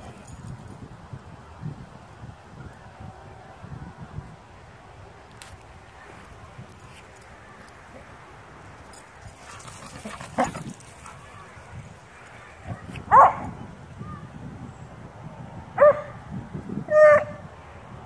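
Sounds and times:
dog yipping: 16.9s - 17.3s.

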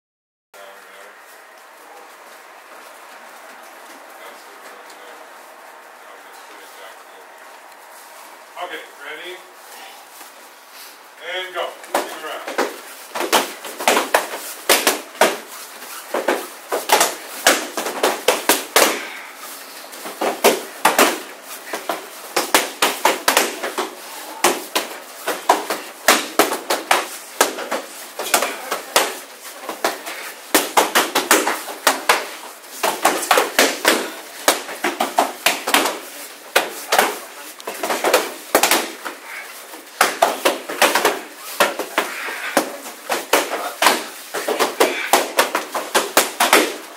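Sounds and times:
strikes slapping padded shields: 11.8s - 19.3s, 20.0s - 46.9s.

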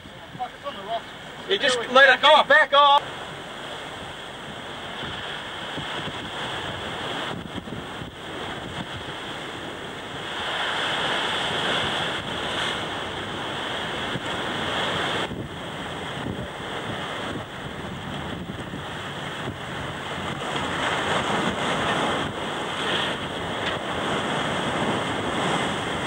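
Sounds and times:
ocean surf washing against rocks: 0.0s - 26.0s
wind buffeting microphone: 0.0s - 26.0s.

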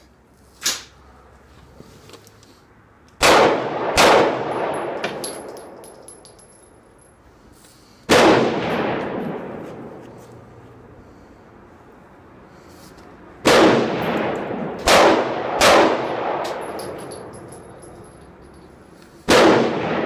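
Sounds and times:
pistol shots echoing: 3.2s - 5.8s, 8.1s - 9.6s, 13.4s - 17.0s, 19.3s - 20.0s.

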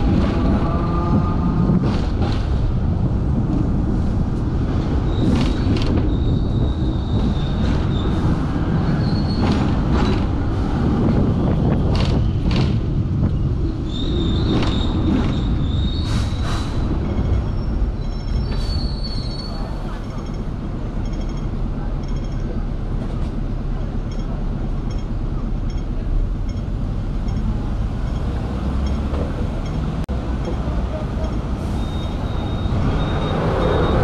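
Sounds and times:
tram rumbling on track: 0.0s - 34.0s
high-pitched wheel squeals: 5.0s - 9.6s, 13.7s - 20.4s, 31.2s - 34.0s.

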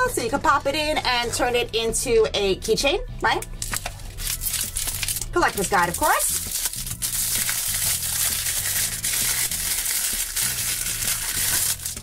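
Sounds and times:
plastic bag torn and crumpled: 3.6s - 12.0s.

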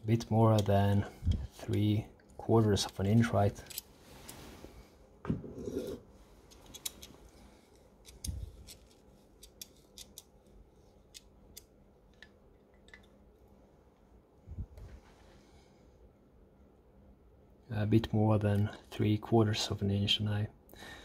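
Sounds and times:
metallic clicks and scrapes: 2.8s - 4.4s, 5.8s - 12.3s.

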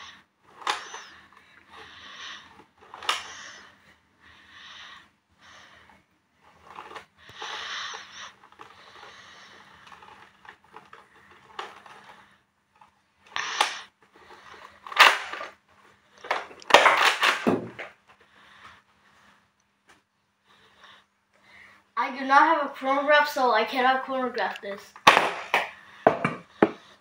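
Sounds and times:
toy blaster rattles: 0.5s - 3.7s, 6.6s - 12.4s, 13.3s - 15.6s, 16.2s - 17.9s.

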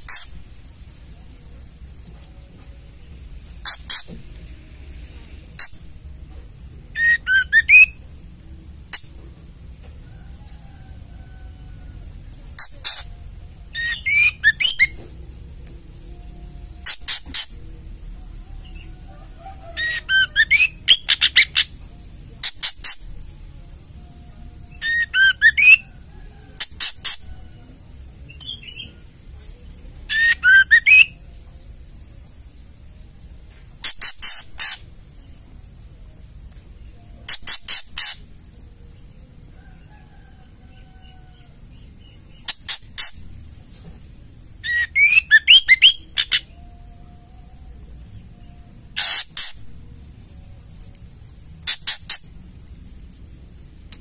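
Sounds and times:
bird whistled notes: 7.0s - 8.0s, 13.8s - 15.0s, 19.6s - 21.7s, 24.8s - 25.9s, 30.1s - 31.2s, 44.6s - 46.8s.

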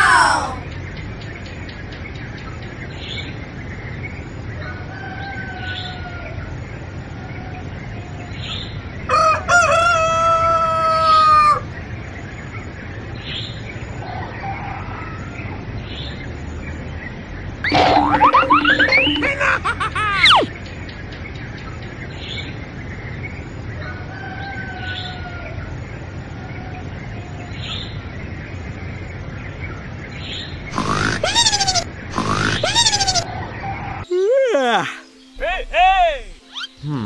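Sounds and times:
rooster crowing: 9.1s - 11.6s
small bird chirps: 30.3s - 33.3s, 35.0s - 37.0s.

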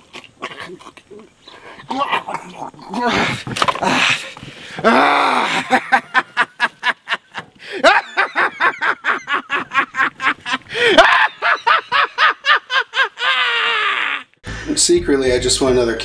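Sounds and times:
man's drawn-out cry: 4.8s - 5.7s
man laughing loudly: 4.8s - 14.3s.

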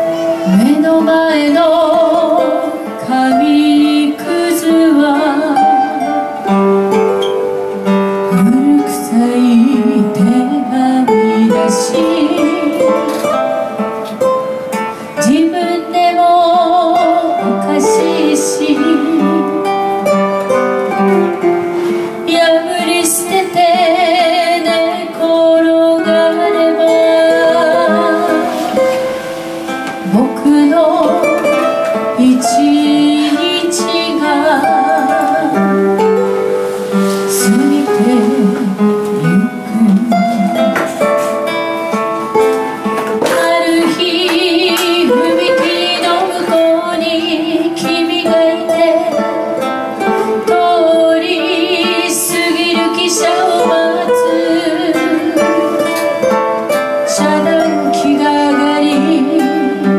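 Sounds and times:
acoustic guitars playing ballad: 0.0s - 59.9s
man singing with vibrato: 37.4s - 41.0s.

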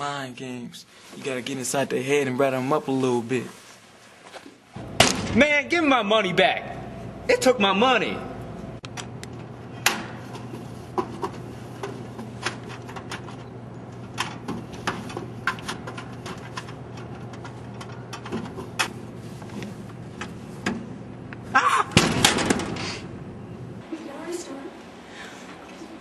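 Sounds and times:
steady low hum: 4.6s - 26.0s
hands rummaging in vending machine slot: 10.2s - 20.8s.

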